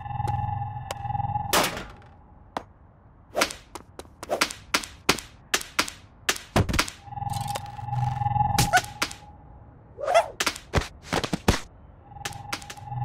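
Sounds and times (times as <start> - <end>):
cartoon whip-like swishes and smacks: 10.0 - 11.4.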